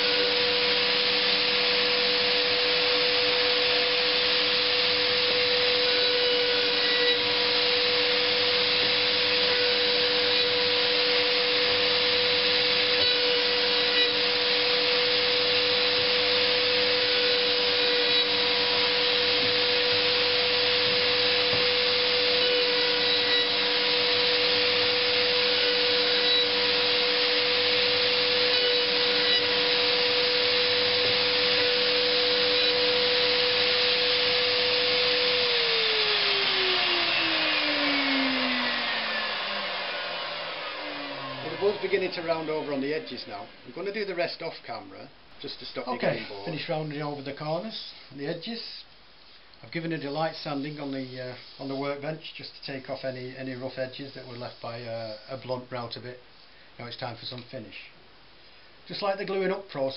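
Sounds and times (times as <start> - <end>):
router whining: 0.0 - 44.0.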